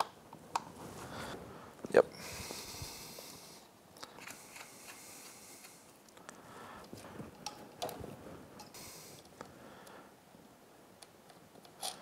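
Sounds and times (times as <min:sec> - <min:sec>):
faint rustling: 0:00.7 - 0:09.6.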